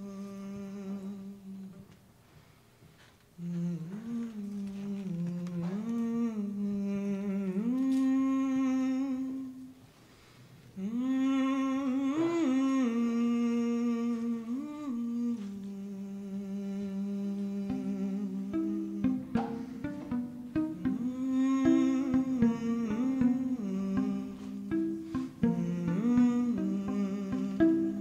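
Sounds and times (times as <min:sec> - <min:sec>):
woman humming a slow melody: 0:00.0 - 0:01.8, 0:03.4 - 0:09.8, 0:10.8 - 0:28.0.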